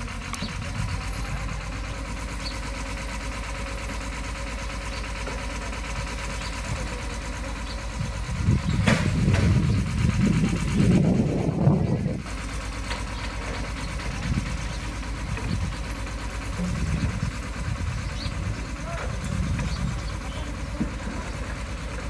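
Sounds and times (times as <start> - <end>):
drilling rig engine throbbing: 5.9 - 12.4.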